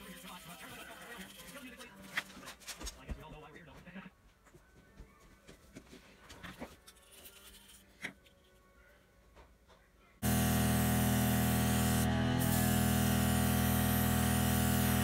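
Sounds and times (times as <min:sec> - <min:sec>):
compressor motor hum: 0:10.2 - 0:15.0.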